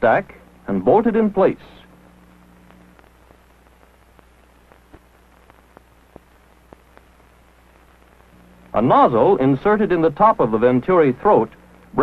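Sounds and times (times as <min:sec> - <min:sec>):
film soundtrack hiss and hum: 0:00.0 - 0:12.0
faint clicks and pops: 0:01.8 - 0:08.8.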